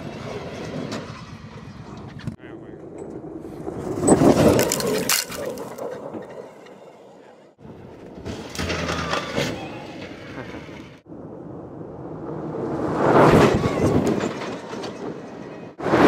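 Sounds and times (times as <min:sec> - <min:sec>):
gravel crunching under tyres: 0:03.2 - 0:09.8
flung stones cracking: 0:04.2 - 0:05.9.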